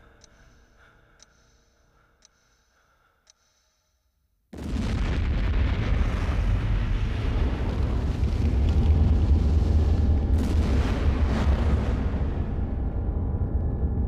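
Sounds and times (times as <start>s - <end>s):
loud rushing fire burn: 4.6s - 13.1s
fire crackle: 4.6s - 13.5s.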